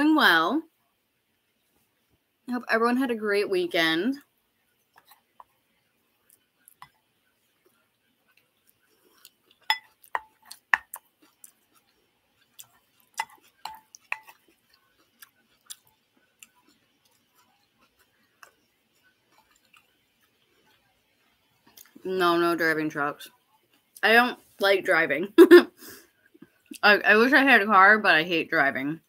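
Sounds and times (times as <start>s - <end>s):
person chewing food: 4.6s - 22.0s, 23.3s - 24.0s.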